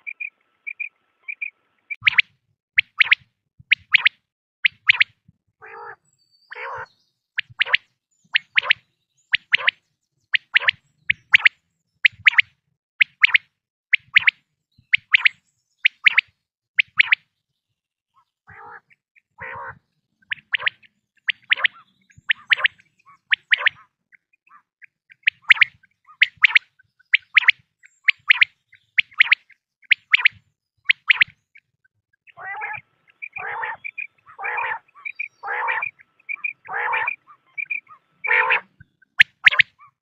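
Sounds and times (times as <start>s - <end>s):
quail calling: 0.0s - 4.1s, 4.7s - 7.8s, 8.4s - 8.8s, 10.4s - 11.5s, 18.2s - 31.4s, 32.3s - 40.0s.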